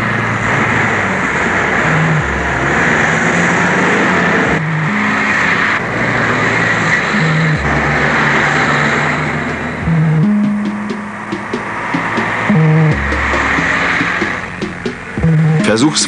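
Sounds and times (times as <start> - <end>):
car engine and tyres on wet road: 0.0 - 16.0
background music with low notes: 4.5 - 5.8, 7.0 - 16.0.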